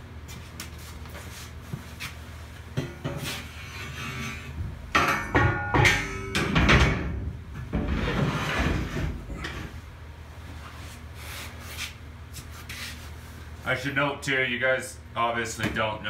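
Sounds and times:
steel bar clanking on metal: 0:02.8 - 0:07.2
metal scraping: 0:03.0 - 0:09.8.

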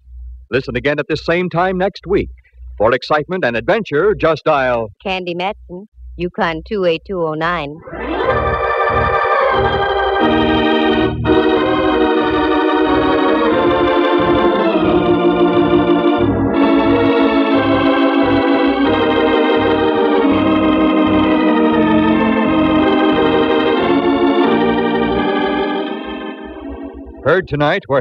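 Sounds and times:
organ playing sustained chords: 0:07.8 - 0:28.0.

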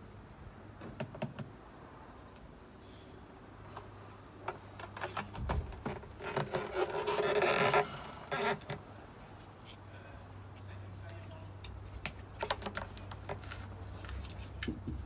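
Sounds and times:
plastic brackets clicking: 0:11.6 - 0:13.5.

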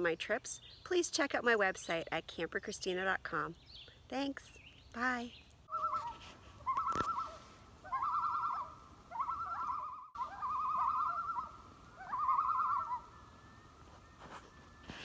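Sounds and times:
bird calling with quavering pitch: 0:04.9 - 0:15.0.

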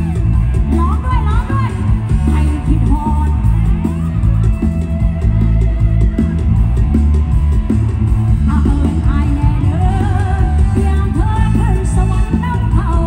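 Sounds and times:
live band music: 0:00.0 - 0:13.0
woman singing: 0:00.7 - 0:03.8, 0:08.4 - 0:13.0.

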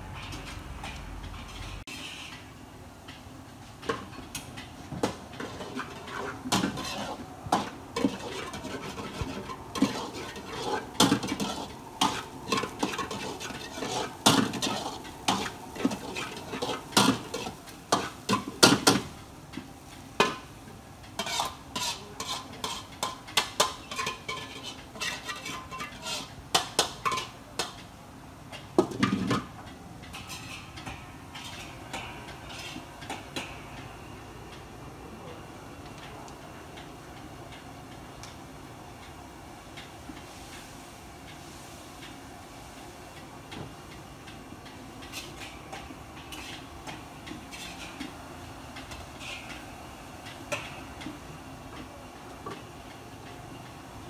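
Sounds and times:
metal ladle scraping a wok: 0:01.4 - 0:02.4, 0:05.4 - 0:18.2, 0:21.2 - 0:23.0, 0:23.6 - 0:26.3.

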